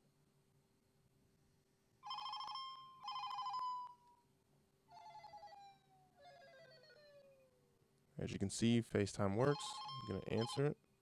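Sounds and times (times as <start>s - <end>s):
warbling two-tone phone ring: 2.0s - 4.1s, 4.9s - 7.2s, 9.4s - 10.8s.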